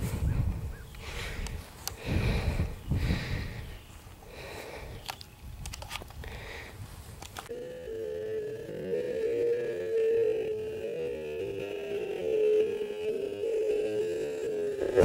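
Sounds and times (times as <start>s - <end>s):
wind buffeting microphone: 0.0s - 7.5s
sharp clicks: 5.0s - 6.2s
humming tone wavering in pitch: 7.5s - 15.0s.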